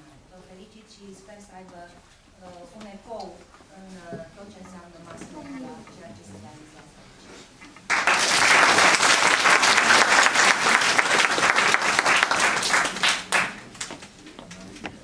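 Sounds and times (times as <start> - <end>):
audience applauding: 7.9 - 14.1.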